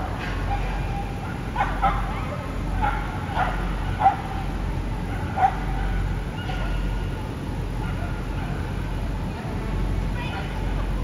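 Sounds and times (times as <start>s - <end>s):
dog barking: 0.0s - 4.5s, 5.1s - 7.0s, 7.8s - 8.6s
steady low hum: 0.0s - 11.0s.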